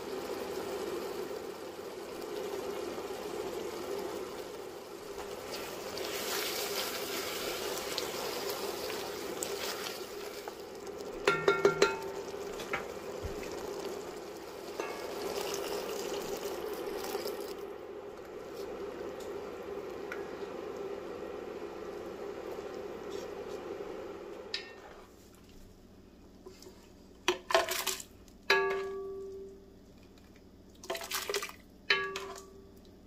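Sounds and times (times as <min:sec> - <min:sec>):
sauce sizzling in a pot: 0:00.0 - 0:25.1
spatula clacking on pot: 0:11.2 - 0:12.2.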